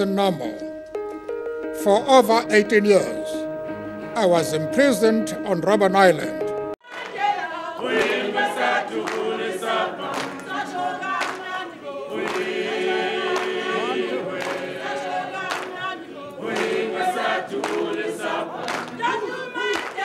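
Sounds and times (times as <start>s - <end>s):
choir singing: 6.8s - 20.0s.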